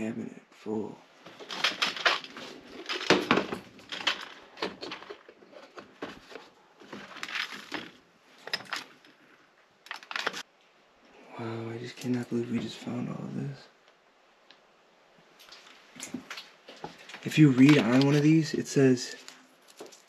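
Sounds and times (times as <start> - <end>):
plastic boxes clattering and scraping: 1.3 - 9.2, 16.9 - 18.4.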